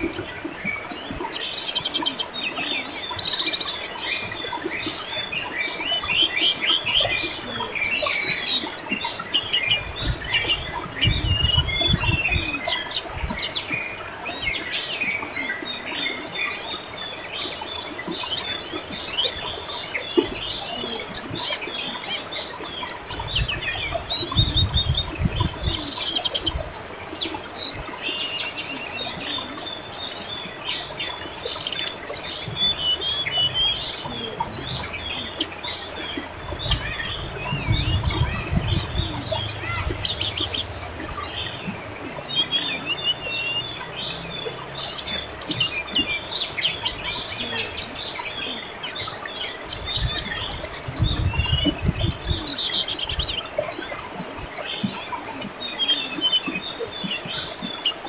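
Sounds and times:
birds chirping and trilling: 0.0s - 58.0s
river water murmur: 0.0s - 58.0s
low rumble: 32.6s - 45.7s.

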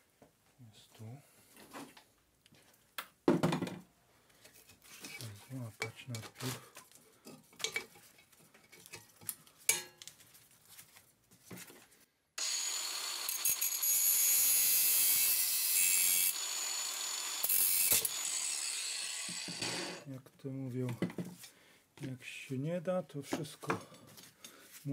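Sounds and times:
angle grinder grinding metal: 12.4s - 20.1s.

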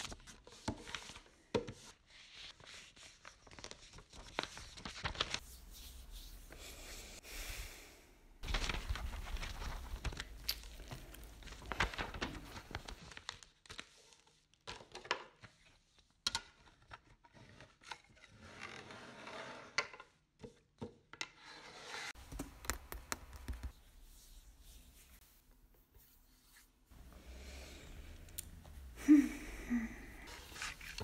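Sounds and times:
rustling and crinkling: 8.4s - 15.8s, 30.2s - 31.0s
sharp clicks and taps: 22.3s - 23.7s.

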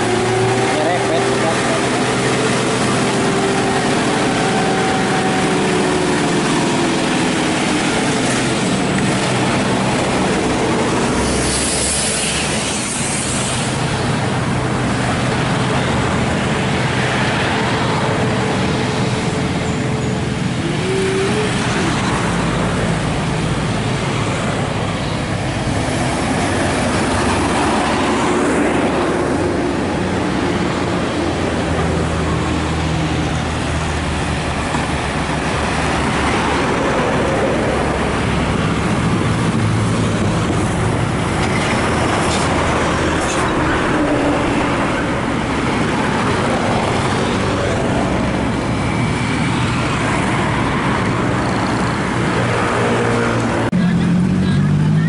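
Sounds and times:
diesel trucks passing: 0.0s - 55.0s
tyre and traffic noise: 0.0s - 55.0s.

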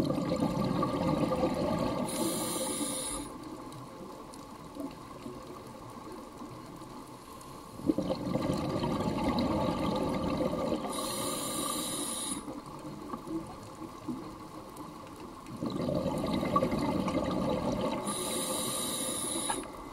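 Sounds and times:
underwater bubbles rushing and gurgling: 0.0s - 19.9s
regulator hiss: 2.0s - 3.5s, 10.9s - 12.6s, 18.0s - 19.9s.

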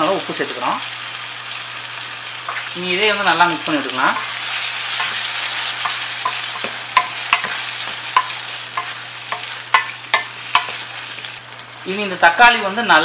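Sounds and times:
vegetables sizzling in oil: 0.0s - 13.0s
spatula tapping pan: 4.1s - 10.9s.

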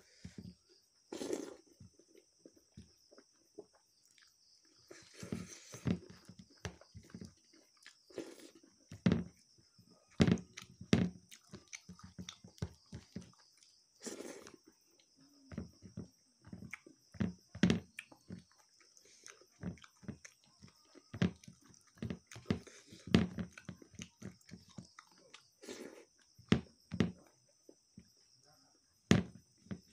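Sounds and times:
wet chewing and smacking: 1.2s - 9.5s, 10.1s - 15.2s, 15.8s - 26.5s.

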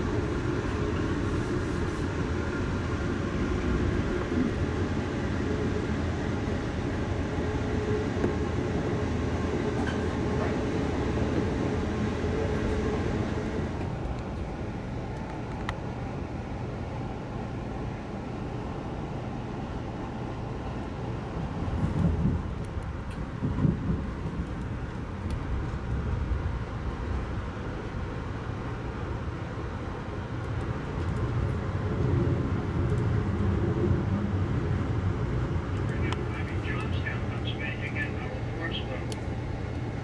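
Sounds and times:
train rumbling on rails: 0.0s - 40.0s.

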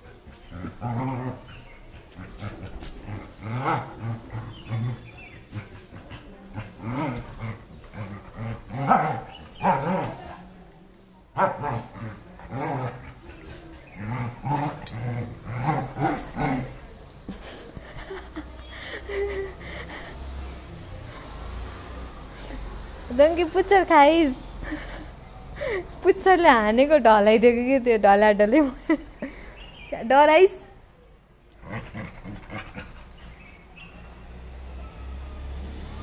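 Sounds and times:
dogs growling: 0.0s - 10.5s, 11.3s - 23.7s, 31.5s - 34.6s
dogs barking: 0.5s - 10.3s, 11.4s - 17.0s.

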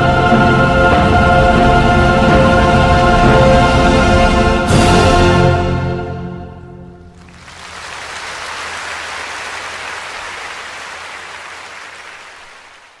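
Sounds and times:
audience applauding: 7.1s - 13.0s.

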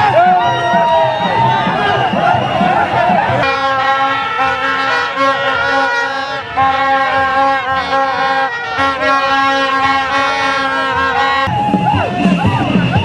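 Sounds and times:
horn held note: 3.4s - 11.6s.

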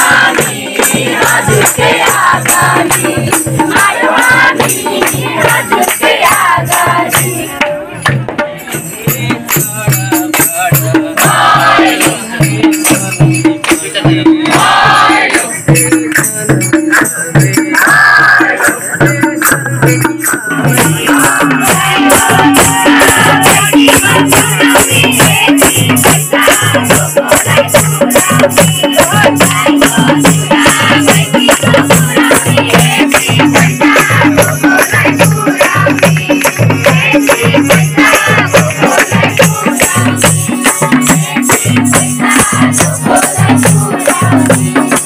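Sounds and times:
group singing folk song: 0.0s - 45.0s
percussion beat: 0.0s - 45.0s.

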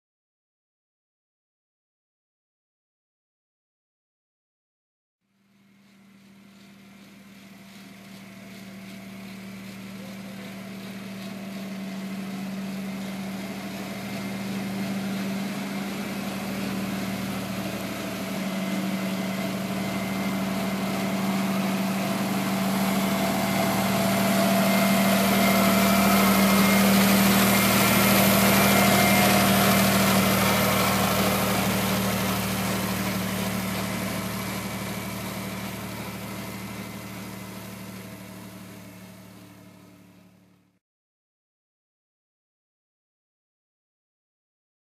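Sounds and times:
tractor engine passing: 6.2s - 40.5s.

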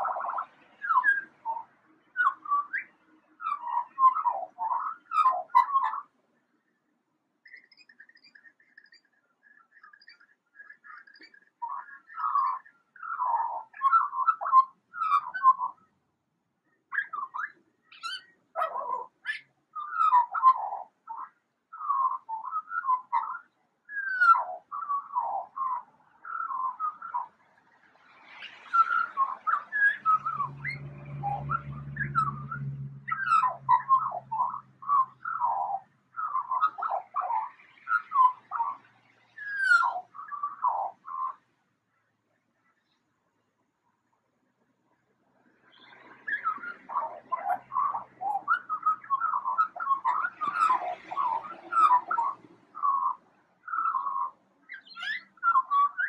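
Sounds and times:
magpie whistling siren-like notes: 0.0s - 6.0s, 28.7s - 38.8s, 39.4s - 41.4s, 46.2s - 56.0s.

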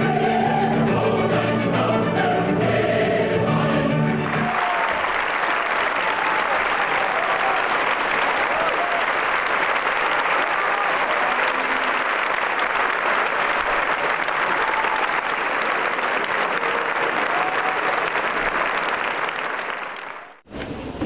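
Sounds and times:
audience applauding: 4.1s - 20.4s.

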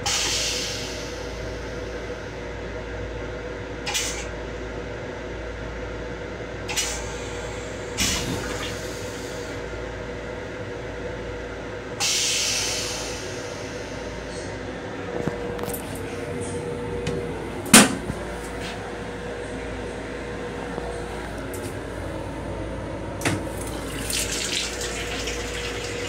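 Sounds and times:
steady train restroom hum: 0.0s - 26.0s
air hissing: 12.0s - 14.4s.

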